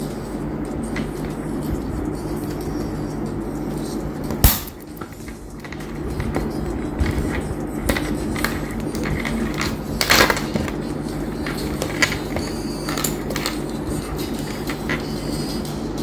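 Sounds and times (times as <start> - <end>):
steady low hum: 0.0 - 16.0
plastic crackle: 4.5 - 15.1
plastic clicks and scraping: 4.9 - 15.1.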